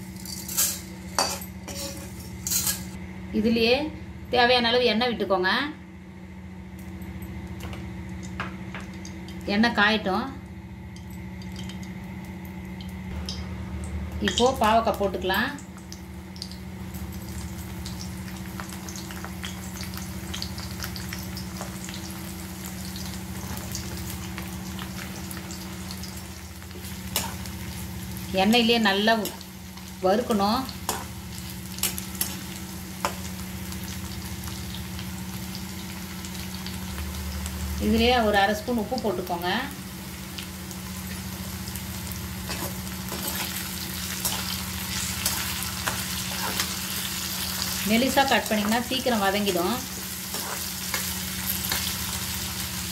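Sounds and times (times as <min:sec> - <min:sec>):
low steady hum: 0:00.0 - 0:52.9
food sizzling in hot oil: 0:11.3 - 0:52.9.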